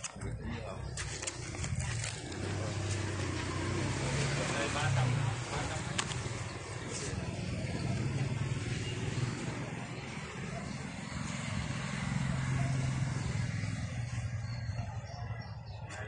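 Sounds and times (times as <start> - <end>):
motor engine humming: 0.3 - 15.2.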